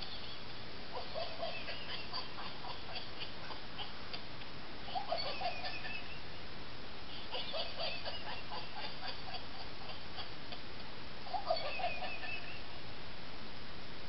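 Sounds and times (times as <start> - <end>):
toy electronic laugh: 0.0 - 4.0, 4.8 - 6.2, 7.1 - 10.6, 11.3 - 12.7
steady hiss: 0.0 - 14.0.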